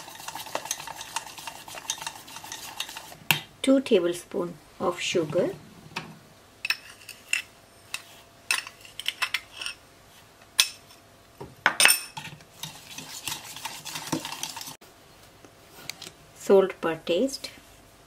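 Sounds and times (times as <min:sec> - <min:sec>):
whisk stirring in steel bowl: 0:00.0 - 0:03.2, 0:12.2 - 0:14.8.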